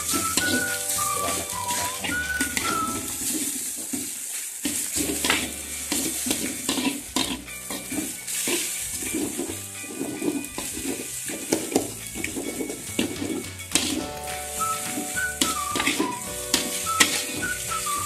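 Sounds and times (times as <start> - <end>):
background music melody: 0.0 - 3.8, 5.0 - 18.0
food sizzling in a wok: 0.0 - 18.0
spatula scraping and knocking pan: 11.4 - 18.0.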